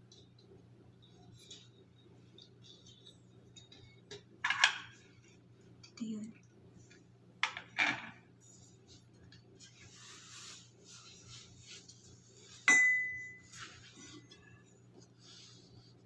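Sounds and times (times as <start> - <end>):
sharp ringing metal clink: 12.7 - 13.4.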